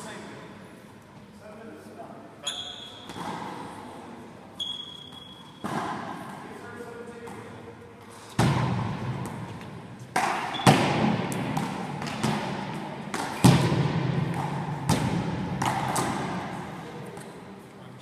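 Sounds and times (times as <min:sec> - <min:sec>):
handball striking wall: 0:08.3 - 0:17.3
ball bouncing on floor: 0:08.4 - 0:16.4.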